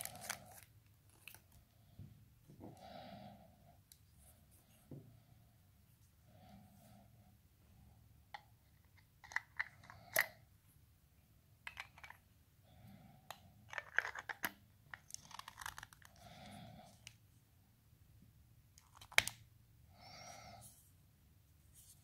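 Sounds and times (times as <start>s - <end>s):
plastic clicks and scraping: 11.7s - 12.2s, 13.7s - 16.2s.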